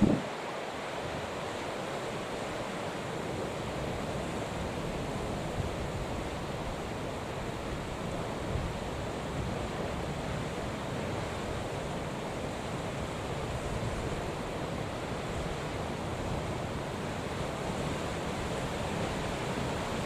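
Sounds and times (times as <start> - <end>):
wind buffeting microphone: 0.0 - 0.3
rough sea waves: 0.0 - 20.0.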